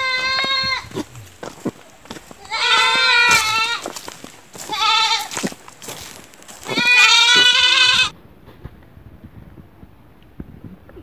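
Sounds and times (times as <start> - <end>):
goat bleating: 0.0 - 8.1.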